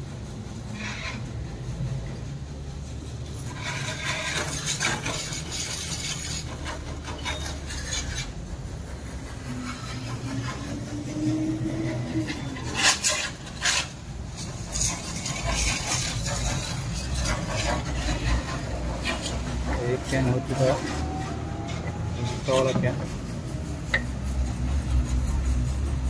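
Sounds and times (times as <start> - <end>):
steady low hum: 0.0 - 26.0
can scraping on filler neck: 3.4 - 8.4, 9.4 - 26.0.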